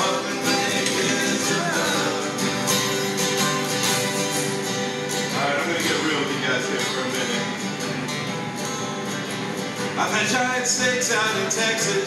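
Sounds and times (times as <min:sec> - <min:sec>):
acoustic guitars strummed and picked: 0:00.0 - 0:12.0.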